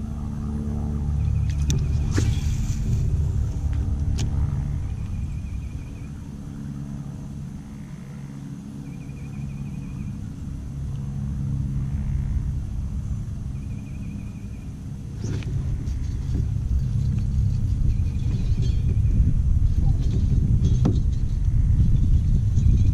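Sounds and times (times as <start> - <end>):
wind buffeting microphone: 0.0 - 8.1, 9.0 - 22.9
fishing rod swishing: 1.6 - 3.7.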